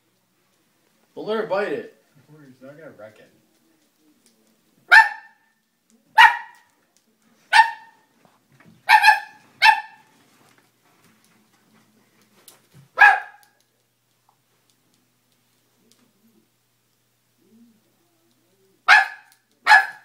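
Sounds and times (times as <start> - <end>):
dog barking: 4.9 - 5.5, 6.2 - 6.7, 7.5 - 8.0, 8.8 - 10.1, 13.0 - 13.6, 18.9 - 20.0.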